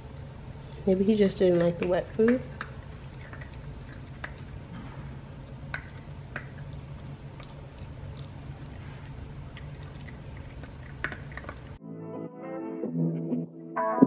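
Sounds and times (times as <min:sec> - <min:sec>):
low steady hum: 0:00.0 - 0:11.8
puppy crunching kibble: 0:01.6 - 0:11.8.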